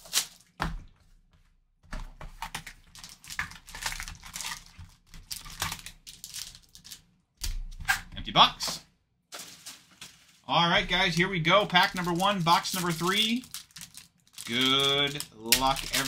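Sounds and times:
plastic shrink-wrap crinkling: 2.8s - 7.1s, 9.3s - 16.0s.

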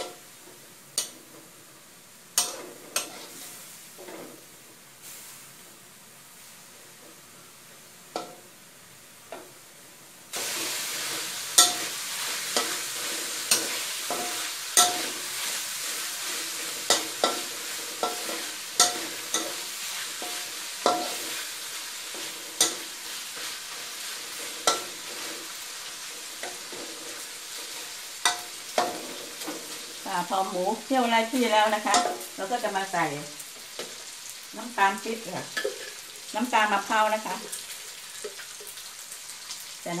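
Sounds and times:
food sizzling: 0.0s - 40.0s
metal spatula scraping a wok: 2.4s - 4.4s, 10.4s - 30.3s, 35.6s - 36.1s.

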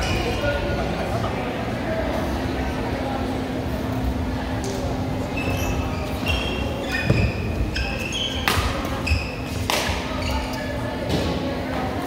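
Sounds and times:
shoes squeaking on court: 5.3s - 10.9s.

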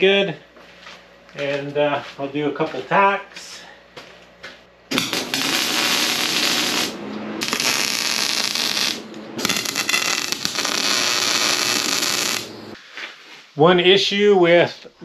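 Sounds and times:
welder arc crackling: 4.9s - 12.8s.

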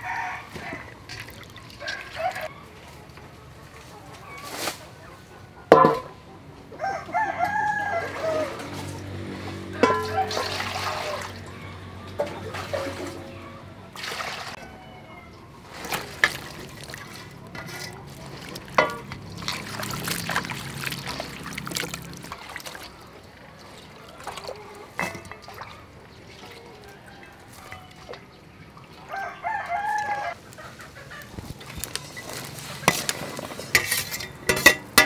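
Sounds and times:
water dripping: 1.0s - 2.5s, 16.1s - 26.6s
water pouring into metal basin: 1.0s - 2.5s, 9.8s - 11.6s, 13.9s - 14.6s, 15.7s - 26.9s
knocks against metal basin: 5.7s - 6.2s, 9.8s - 10.4s
hands swishing in water: 15.7s - 23.0s.

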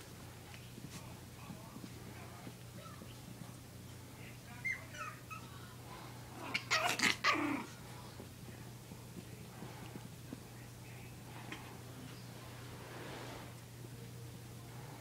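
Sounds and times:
puppies yipping and squeaking: 4.6s - 5.6s.

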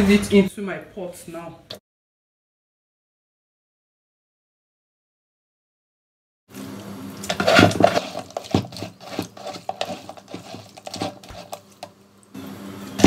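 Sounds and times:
metal sieve and pot clattering: 7.2s - 11.7s.

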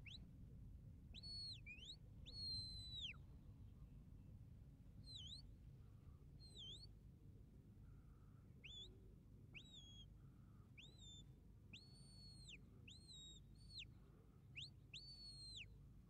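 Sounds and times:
shepherd's whistle: 5.1s - 5.4s, 9.6s - 10.1s, 10.8s - 13.9s, 14.5s - 15.7s.

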